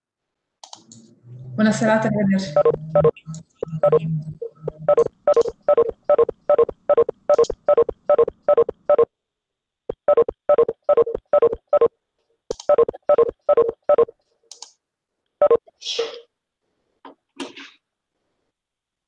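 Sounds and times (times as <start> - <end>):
short identical beeps: 2.6 - 4.0, 4.7 - 9.1, 9.9 - 11.9, 12.7 - 14.1.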